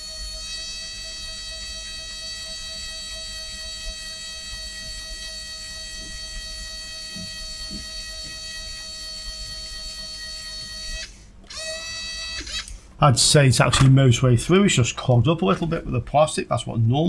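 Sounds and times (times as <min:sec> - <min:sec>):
electric screwdriver drilling acrylic: 0:00.0 - 0:12.8.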